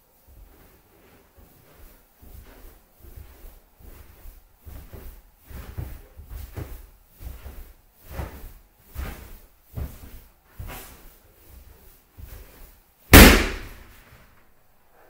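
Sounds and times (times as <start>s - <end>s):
rubber balloon thudding and rubbing: 12.2s - 14.0s.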